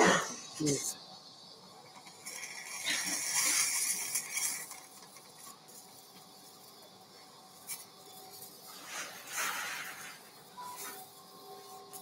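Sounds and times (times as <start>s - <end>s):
electrocautery pencil sizzling: 0.5s - 12.0s
brief crackle: 7.6s - 12.0s.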